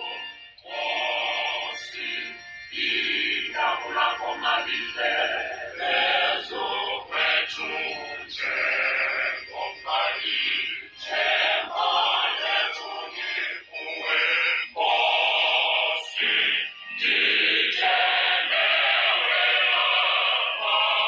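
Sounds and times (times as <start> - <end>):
voices singing a hymn: 0.0 - 21.0.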